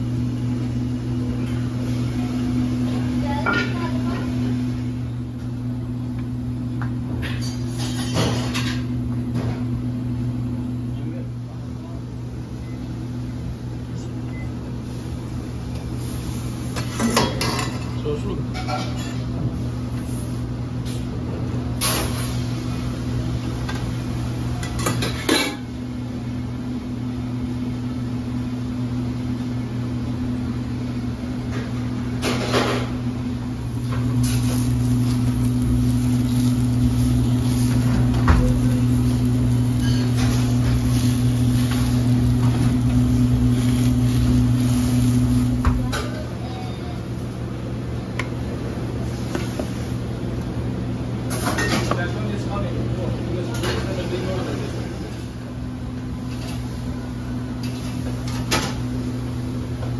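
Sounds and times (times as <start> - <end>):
dishes and pans clattering: 7.2 - 9.5, 16.8 - 19.3, 24.6 - 25.7
electric machine humming: 33.0 - 49.1.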